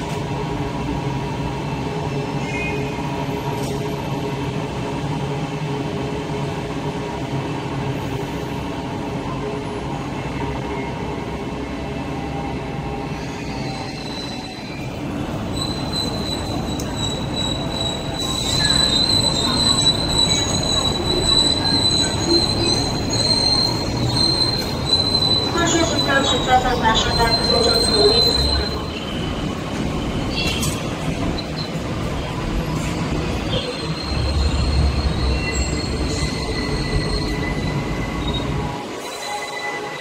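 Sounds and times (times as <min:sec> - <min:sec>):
train rumbling: 0:00.0 - 0:40.0
train wheel squeal: 0:02.1 - 0:04.0, 0:12.2 - 0:40.0.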